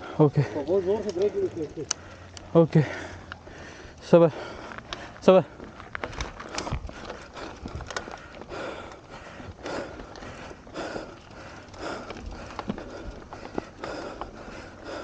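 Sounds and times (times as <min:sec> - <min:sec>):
bike tyres crunching on dirt: 0:00.0 - 0:15.0
rider breathing hard: 0:00.0 - 0:15.0
bike knocking over bumps: 0:04.8 - 0:15.0.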